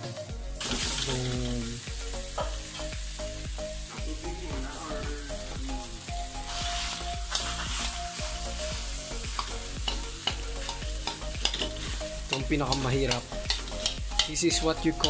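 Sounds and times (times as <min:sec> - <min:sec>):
rice sizzling in pan: 0:00.5 - 0:15.0
metal spatula scraping pan: 0:06.5 - 0:08.0, 0:09.3 - 0:14.4
spatula clicking against pan: 0:09.4 - 0:14.4.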